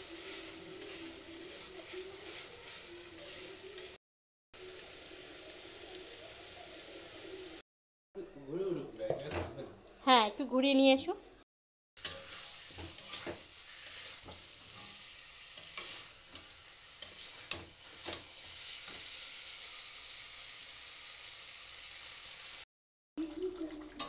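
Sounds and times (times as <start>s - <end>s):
chicken sizzling in a pan: 0.0s - 4.0s, 4.6s - 7.6s, 12.0s - 24.0s
metal spatula scraping a pan: 0.0s - 4.0s, 12.0s - 19.1s.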